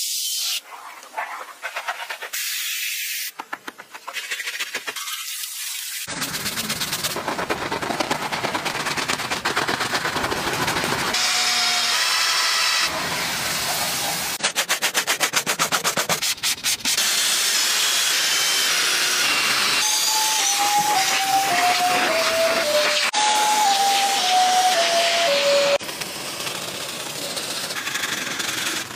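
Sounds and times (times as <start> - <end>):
foam spray hissing: 1.8 - 3.4, 4.2 - 16.7
rapid even pulsing: 6.1 - 11.2
simple tune of falling notes: 19.8 - 25.8.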